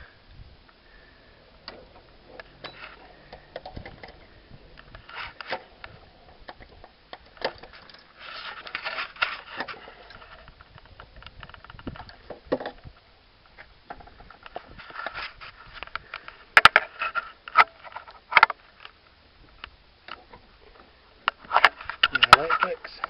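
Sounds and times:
hands handling engine parts: 1.6 - 12.8.

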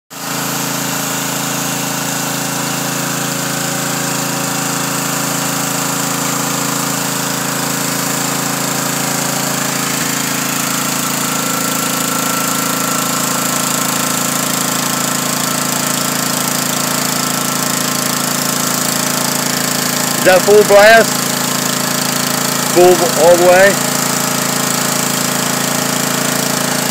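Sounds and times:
pressure washer motor and pump hum: 0.1 - 26.9
water jet spraying on concrete: 0.2 - 26.9
high steady whine: 20.2 - 21.1, 22.7 - 23.8.

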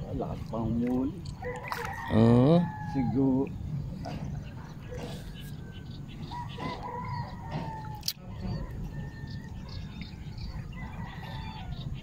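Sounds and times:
rooster crowing: 1.4 - 3.2, 6.3 - 9.7
steady low rumble: 2.2 - 12.0
small birds chirping: 2.7 - 12.0.

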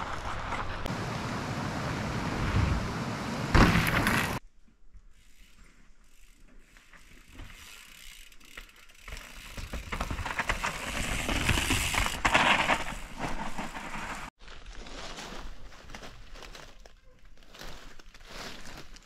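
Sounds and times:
bike tyres crunching over dirt: 0.0 - 2.9, 3.5 - 19.0
bike clattering: 3.5 - 4.4, 6.1 - 14.2.

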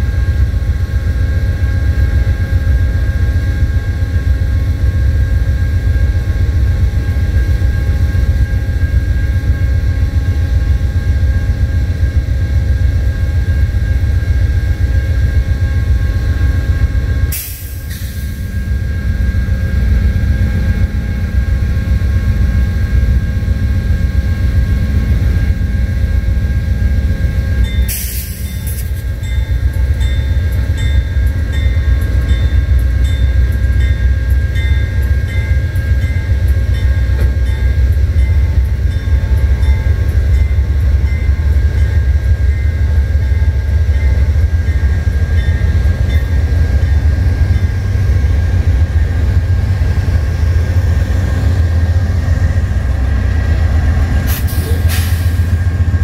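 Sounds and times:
diesel locomotive rumbling: 0.0 - 56.0
crossing bells ringing: 27.0 - 54.9.

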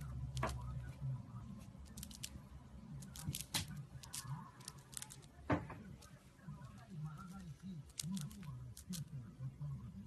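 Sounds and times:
hamster nibbling clicks: 0.0 - 0.9, 1.6 - 9.2
faint low hum: 0.0 - 10.0.

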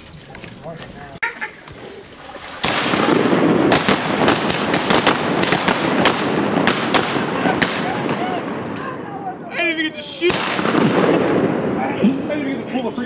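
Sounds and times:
shotgun shots: 2.6 - 8.8, 10.2 - 11.8
gunshot echoes: 2.6 - 9.0, 10.2 - 12.0.

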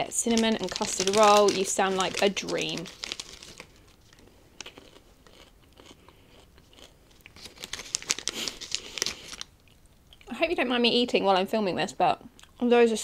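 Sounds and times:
snack bag crinkling: 0.1 - 10.2.

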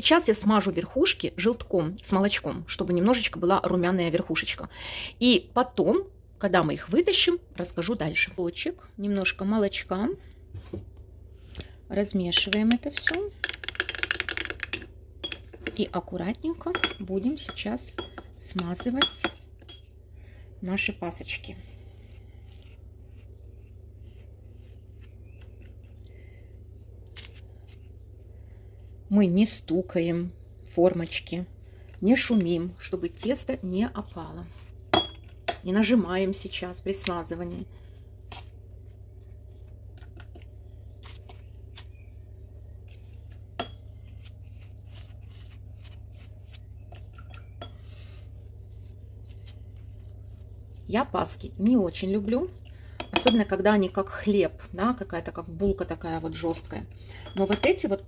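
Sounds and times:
pastry brush tapping baking rings: 12.4 - 20.0
steady low hum: 14.5 - 58.0
pastry brush strokes on dough: 19.8 - 30.1, 31.1 - 35.0, 35.8 - 42.0, 42.7 - 47.1, 47.8 - 52.5.

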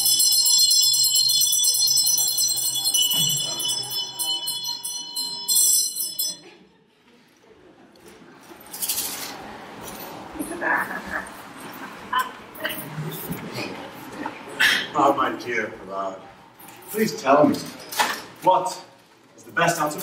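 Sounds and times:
bells jingling: 0.0 - 6.6.

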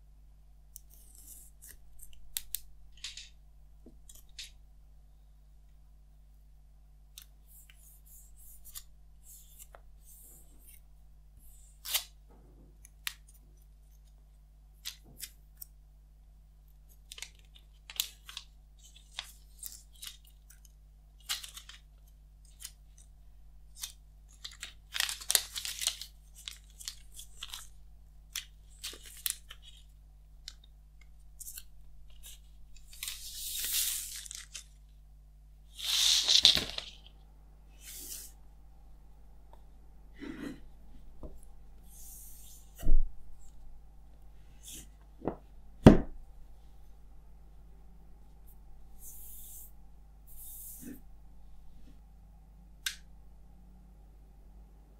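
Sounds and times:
plastic shrink-wrap crinkling and ripping: 23.8 - 27.8, 35.8 - 37.1.

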